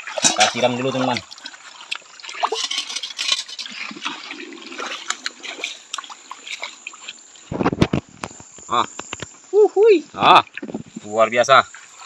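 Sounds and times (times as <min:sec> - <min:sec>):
water splashing onto a pan: 0:00.0 - 0:07.8.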